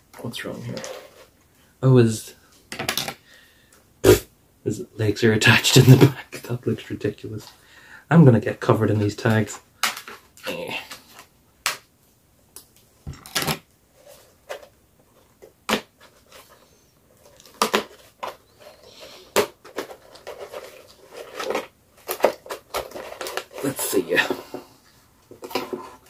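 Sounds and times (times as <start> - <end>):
soft packaging rustling: 13.9 - 26.0.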